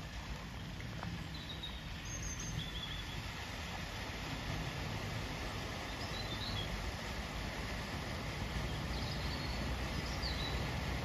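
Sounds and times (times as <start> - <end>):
low engine rumble: 0.0 - 11.0
water washing: 0.0 - 11.0
bird chirps: 8.9 - 10.7.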